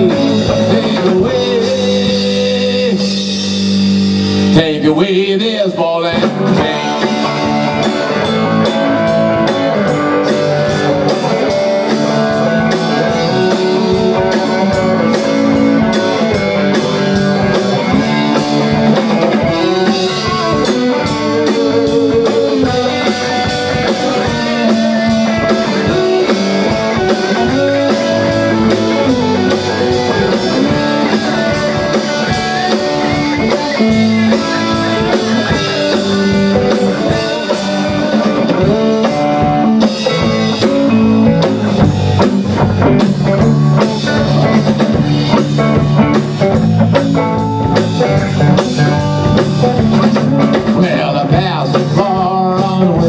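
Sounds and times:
live rock band playing: 0.0s - 53.0s
melodic guitar lines: 0.0s - 53.0s.

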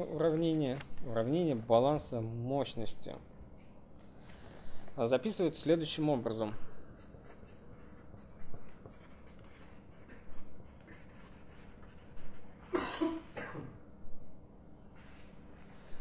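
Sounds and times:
marker scratching on paper: 6.8s - 12.6s.

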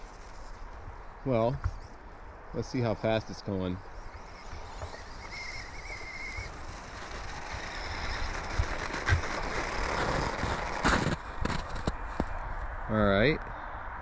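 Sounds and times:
rc truck motor whine: 3.8s - 11.1s.

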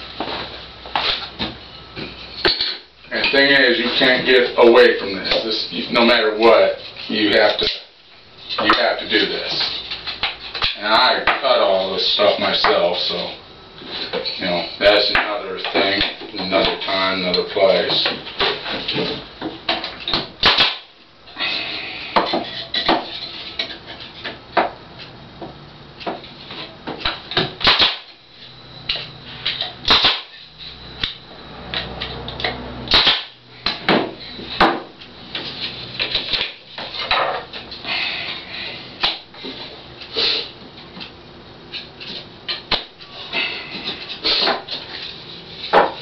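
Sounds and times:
pneumatic nail gun shots: 20.4s - 20.9s, 27.6s - 28.1s, 29.9s - 30.4s, 32.9s - 33.4s.

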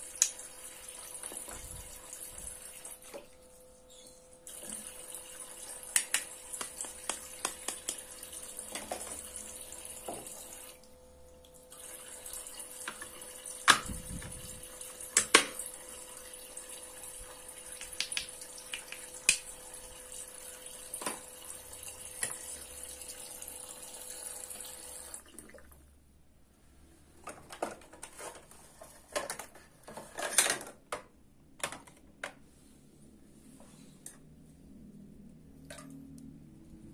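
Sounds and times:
small pump hum: 0.0s - 26.0s
toy faucet running water: 4.5s - 10.9s, 11.7s - 25.2s
plastic toy parts clattering: 27.3s - 31.0s.

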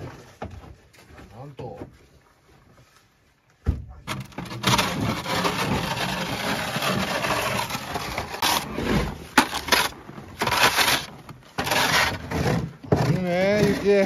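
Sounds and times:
plastic shovel scraping snow: 4.2s - 14.0s.

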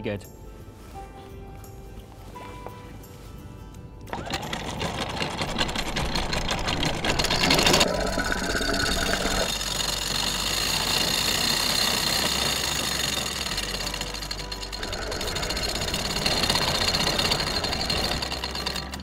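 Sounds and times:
anchor chain rattling: 4.1s - 19.0s
electric anchor windlass: 4.1s - 19.0s.

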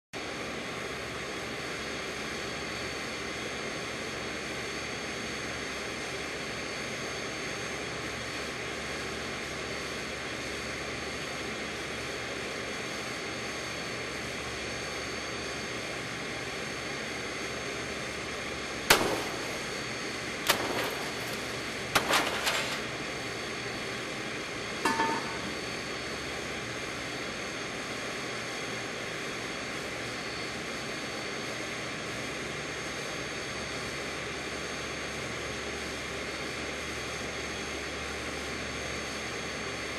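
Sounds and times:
steady mechanical whir: 6.5s - 29.3s.

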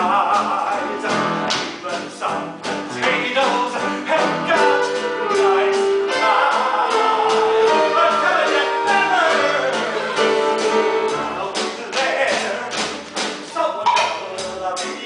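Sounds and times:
singing: 0.0s - 10.3s.

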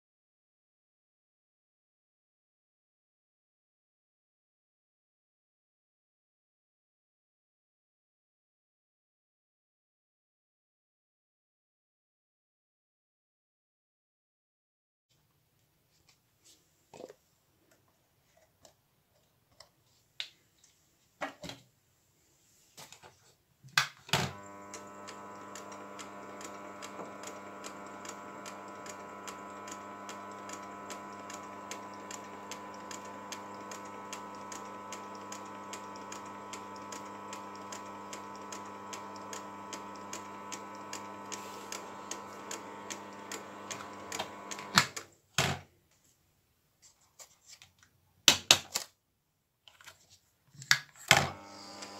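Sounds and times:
lathe switching off clunks: 24.2s - 45.0s, 51.2s - 51.9s
metal lathe humming: 24.4s - 44.9s, 51.3s - 51.9s.

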